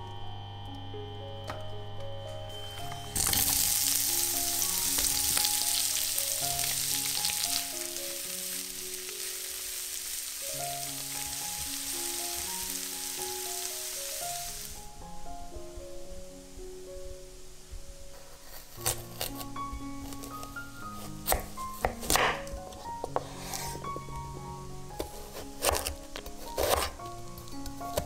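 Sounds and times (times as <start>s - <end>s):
soft background music: 0.0s - 28.0s
onions sizzling in oil: 2.7s - 15.0s.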